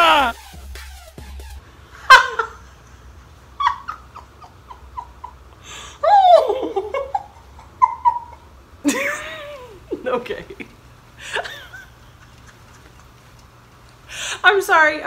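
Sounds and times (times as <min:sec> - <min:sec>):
woman laughing: 0:02.0 - 0:05.4, 0:06.0 - 0:13.4.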